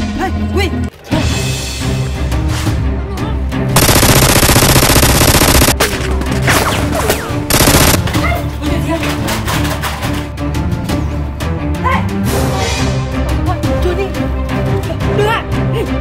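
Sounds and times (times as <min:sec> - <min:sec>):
automatic gunfire bursts: 0:03.8 - 0:05.8, 0:07.5 - 0:08.1
background music: 0:05.8 - 0:16.0.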